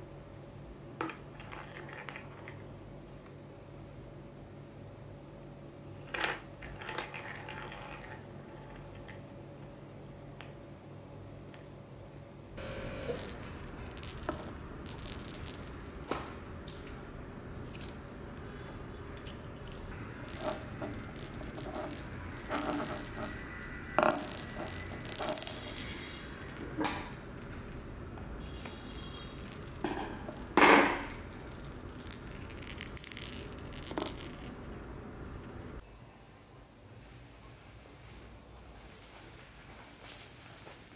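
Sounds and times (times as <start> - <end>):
plastic ball clicks and rattles: 13.1 - 16.2, 19.2 - 27.9, 28.6 - 34.6.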